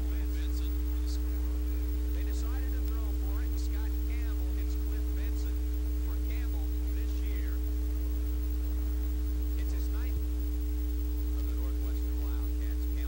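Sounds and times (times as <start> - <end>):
electrical hum: 0.0 - 13.0
faint voices: 0.0 - 13.0.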